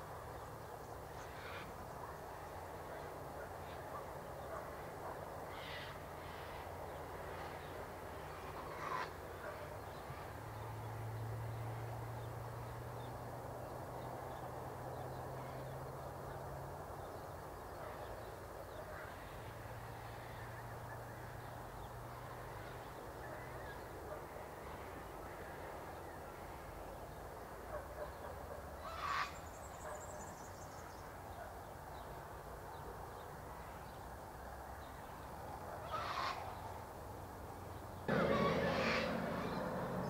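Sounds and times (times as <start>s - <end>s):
low hum: 38.1s - 40.0s.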